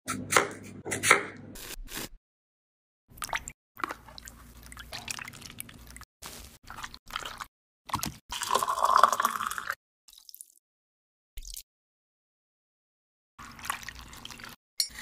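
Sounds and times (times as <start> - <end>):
juice pouring over ice: 8.3 - 10.5.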